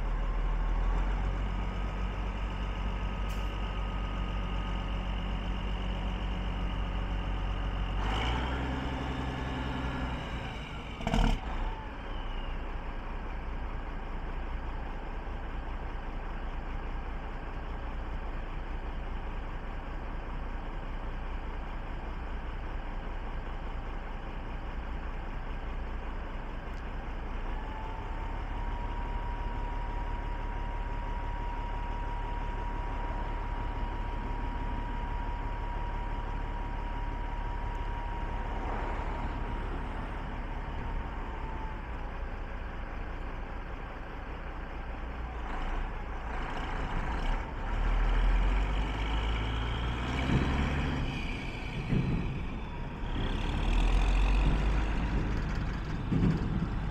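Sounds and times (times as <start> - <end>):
diesel truck engine idling: 0.0 - 56.9.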